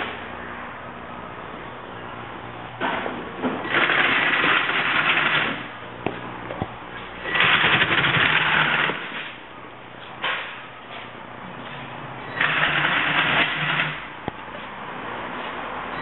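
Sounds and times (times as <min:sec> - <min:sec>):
robot track motors running: 0:07.2 - 0:09.3, 0:12.4 - 0:14.1.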